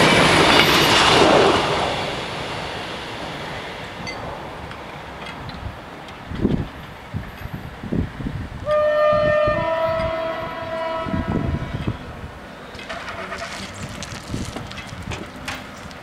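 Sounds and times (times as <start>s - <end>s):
train horn blast: 8.6s - 12.1s.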